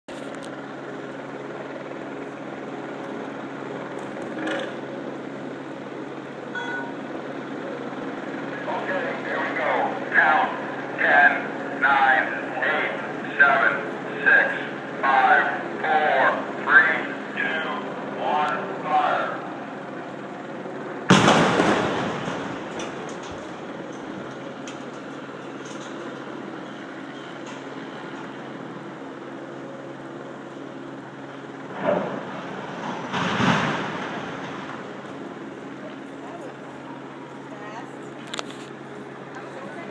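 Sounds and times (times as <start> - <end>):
low hum: 0.5 - 37.5
demolition charge blast: 21.0 - 24.0, 31.7 - 35.0.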